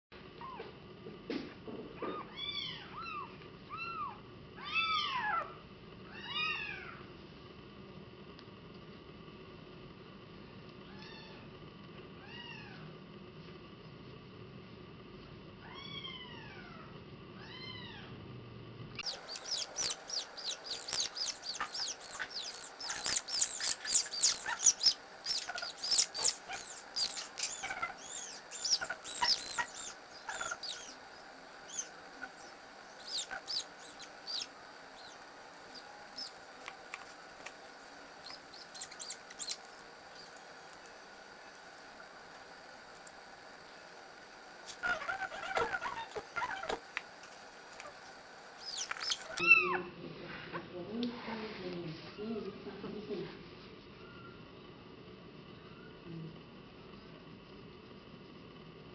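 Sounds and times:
kitten meowing: 0:19.0 - 0:31.0, 0:31.7 - 0:35.2, 0:38.2 - 0:39.6.

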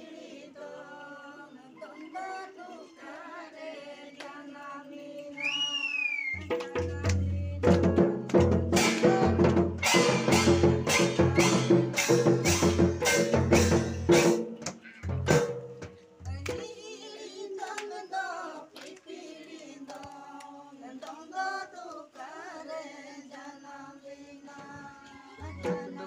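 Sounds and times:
men singing: 0:00.0 - 0:05.6, 0:06.5 - 0:12.3, 0:16.3 - 0:26.0
drums beating fast rhythm: 0:06.4 - 0:16.7, 0:25.4 - 0:26.0.

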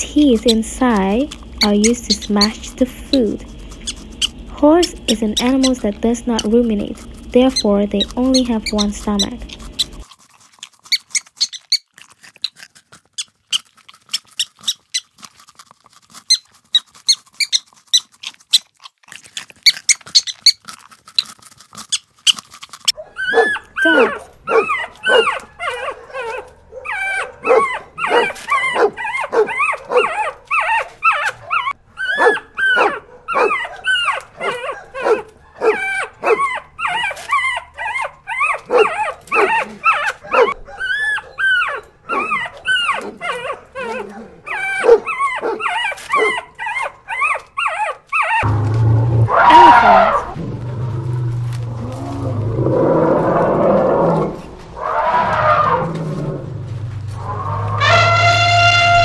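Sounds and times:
puppies whining and yelping: 0:00.0 - 0:10.1, 0:21.2 - 0:48.5
elephant call: 0:54.8 - 0:59.0.

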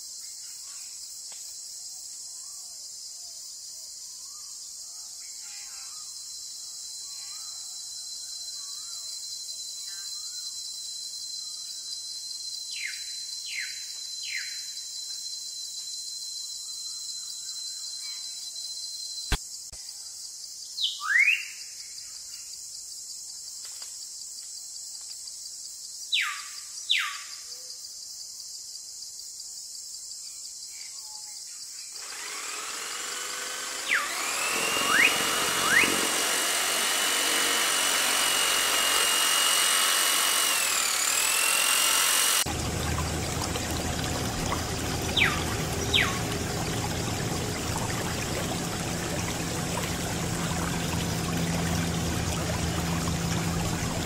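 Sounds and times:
small motor whining: 0:32.0 - 0:54.0
birds chirping: 0:33.8 - 0:54.0
water pouring from tube: 0:42.5 - 0:54.0.

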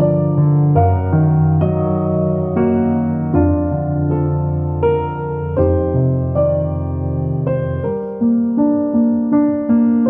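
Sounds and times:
slow piano music: 0:00.0 - 0:10.0.

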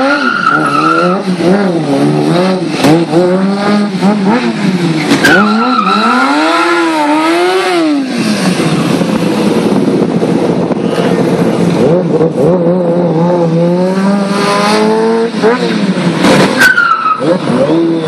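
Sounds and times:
tire squeal: 0:00.0 - 0:01.4, 0:05.1 - 0:07.1, 0:16.3 - 0:17.7
motorcycle engine revving: 0:00.0 - 0:18.0.

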